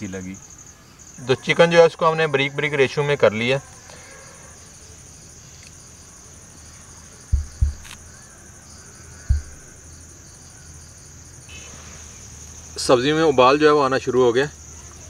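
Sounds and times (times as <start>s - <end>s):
insects trilling: 0.0s - 15.0s
dull low thumps: 7.3s - 8.2s, 9.3s - 9.9s.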